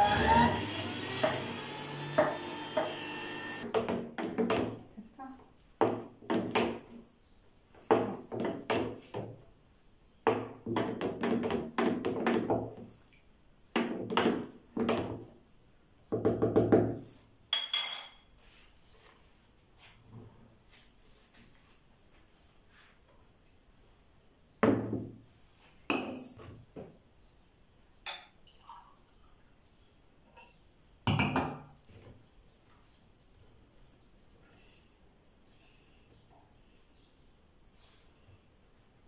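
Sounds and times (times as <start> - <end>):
juicer motor running: 0.0 - 3.6.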